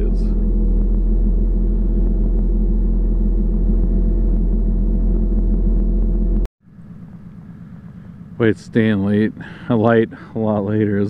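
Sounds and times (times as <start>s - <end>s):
diesel truck engine running: 0.0s - 11.0s
faint hum: 0.0s - 11.0s.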